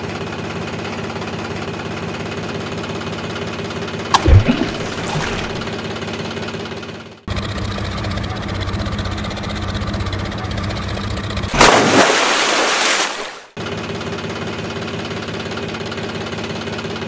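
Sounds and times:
engine idling with knock: 6.7 - 11.6.

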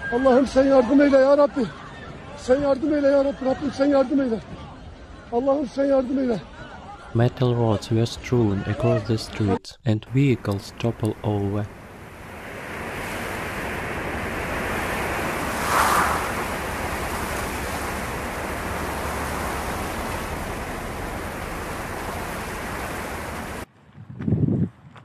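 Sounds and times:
moving car: 10.3 - 23.7
wind rushing: 11.7 - 23.6.

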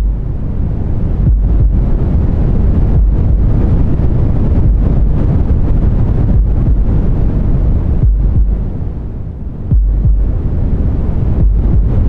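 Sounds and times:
slow heartbeat throb: 0.0 - 0.2, 1.2 - 2.1, 2.9 - 3.6, 4.6 - 5.0, 6.3 - 7.0, 8.0 - 8.7, 9.7 - 10.4, 11.4 - 12.0
deep white noise rumble: 0.0 - 12.0.

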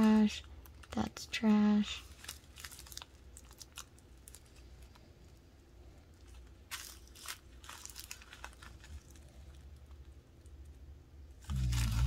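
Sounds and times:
plastic bag crinkling: 0.0 - 1.3, 2.0 - 5.4, 6.1 - 10.2, 11.4 - 12.0.

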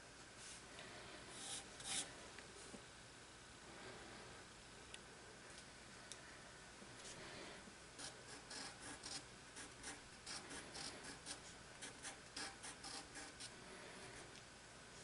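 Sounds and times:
pencil scratching on paper: 8.0 - 13.5.

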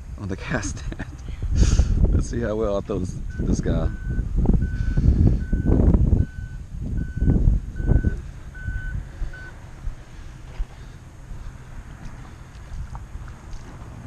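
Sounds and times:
low rumble: 0.0 - 14.0
vehicle reversing alarm beeping: 3.2 - 12.6.

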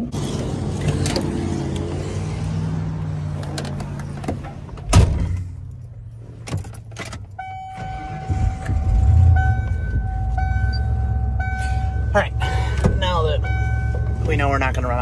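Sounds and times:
engine cranking and idling: 3.4 - 15.0
car door shutting: 3.7 - 5.5
warning chime dinging: 7.4 - 14.9.

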